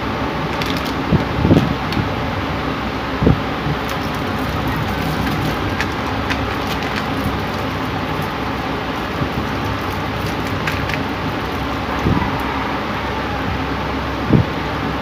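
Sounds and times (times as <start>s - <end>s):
steady hiss: 0.0s - 15.0s
person chewing food: 3.8s - 12.2s.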